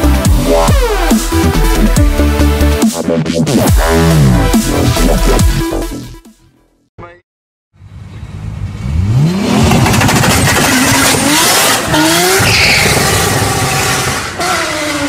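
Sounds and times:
car engine revving up: 8.5s - 15.0s.

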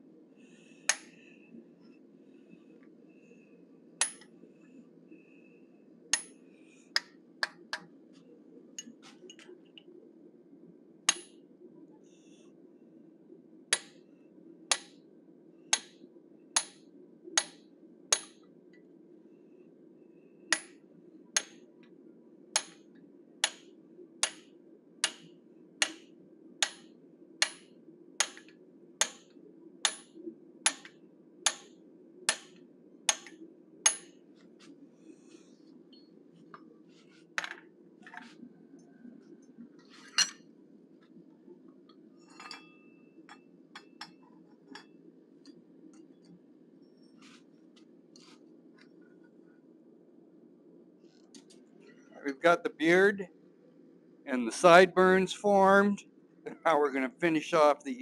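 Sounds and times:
low hum: 24.8s - 57.0s.

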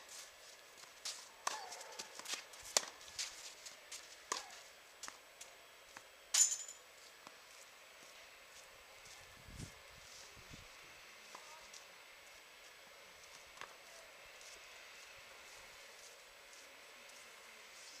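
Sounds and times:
tennis balls struck and bouncing: 1.4s - 3.0s, 4.2s - 4.6s.

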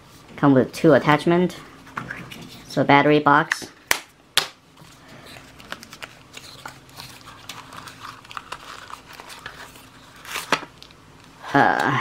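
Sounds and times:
hands handling plastic and cardboard: 3.6s - 11.9s
packaging crinkling: 4.8s - 11.4s.

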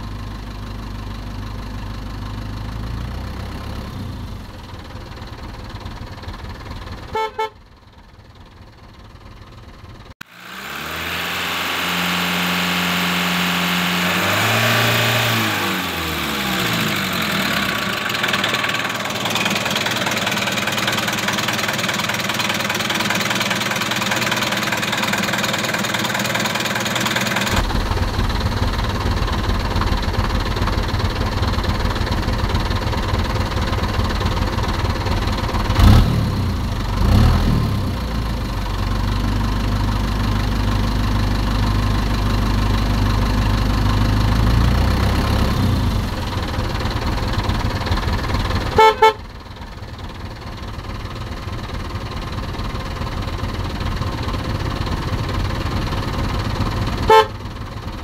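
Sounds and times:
truck diesel engine idling: 0.0s - 58.0s
engine revs: 2.6s - 4.6s, 10.2s - 38.8s, 42.9s - 49.2s.

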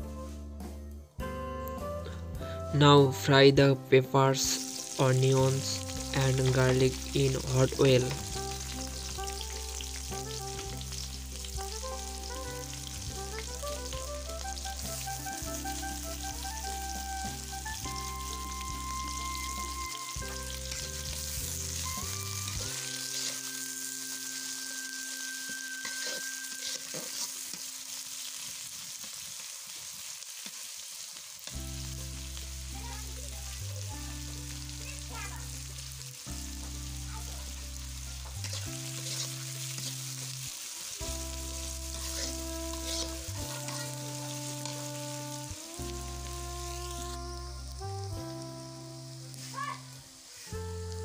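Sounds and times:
background music with held notes: 0.0s - 28.4s, 31.4s - 51.0s
vegetables sizzling in hot oil: 4.2s - 51.0s
metal spatula scraping pan: 22.7s - 23.7s, 25.5s - 27.6s, 38.4s - 40.2s, 41.9s - 44.8s.

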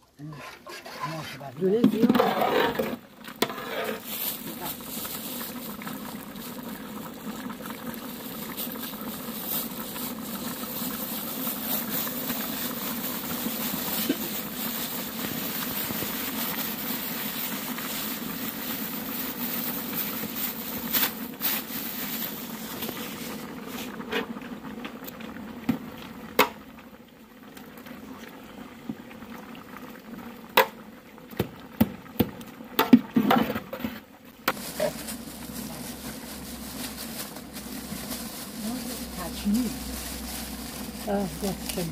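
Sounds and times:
pot of soup boiling: 0.0s - 41.9s.

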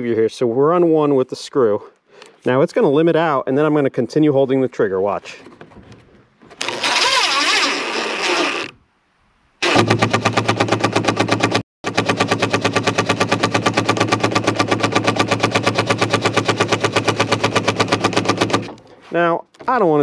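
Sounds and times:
impact driver motor spinning: 6.6s - 8.7s, 9.6s - 18.8s
impact driver rattling impacts: 9.6s - 18.9s.

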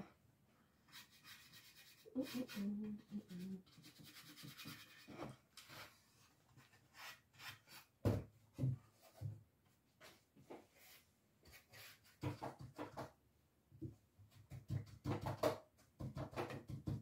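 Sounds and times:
brush rubbing on wood: 0.9s - 6.0s.

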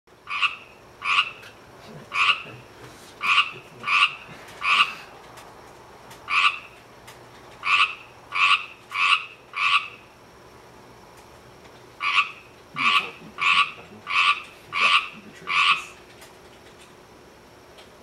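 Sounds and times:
tree frog ribbit calls: 0.2s - 5.1s, 6.2s - 6.8s, 7.6s - 10.2s, 12.0s - 16.0s.

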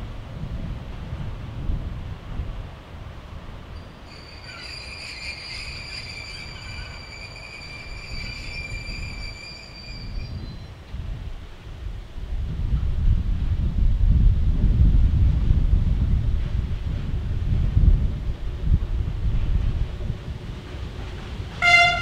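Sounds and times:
train low rumble: 0.0s - 22.0s
train wheels squealing: 3.7s - 10.8s.

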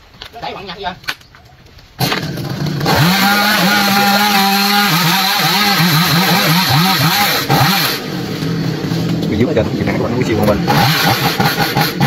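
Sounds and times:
chainsaw cutting branch: 2.0s - 9.2s, 10.4s - 12.0s.

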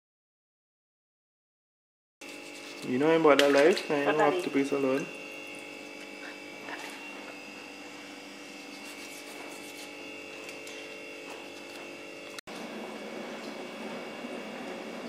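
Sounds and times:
steady hum: 2.2s - 15.0s
hands rubbing raw chicken: 8.6s - 10.5s.

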